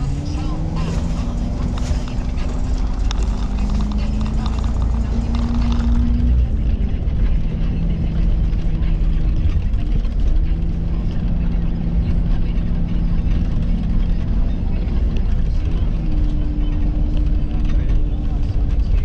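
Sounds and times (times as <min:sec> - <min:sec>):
car engine drone: 0:00.0 - 0:19.0
tyre and road rumble: 0:00.0 - 0:19.0.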